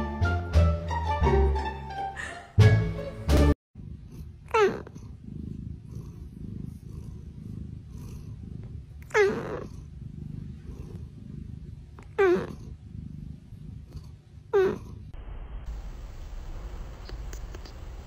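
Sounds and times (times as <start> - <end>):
cat purring: 3.8 - 15.2.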